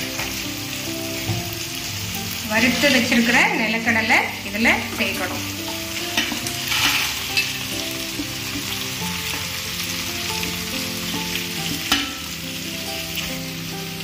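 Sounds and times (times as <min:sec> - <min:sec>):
food sizzling in oil: 0:00.0 - 0:14.0.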